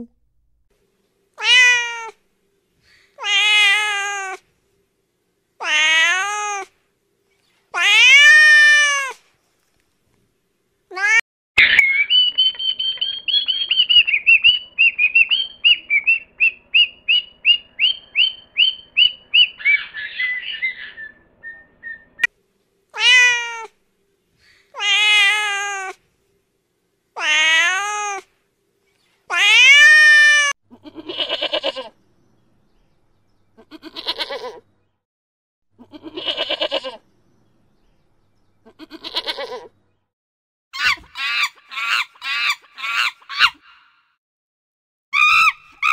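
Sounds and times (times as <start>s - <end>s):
cats meowing: 1.4s - 2.2s, 3.2s - 4.4s, 5.6s - 6.7s, 7.8s - 9.2s, 24.8s - 26.0s, 29.3s - 31.9s.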